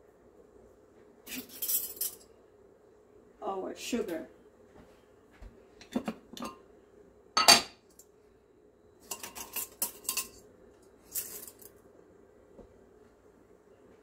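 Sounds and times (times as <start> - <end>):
spoon clinking on ceramic dishes: 9.0 - 10.4.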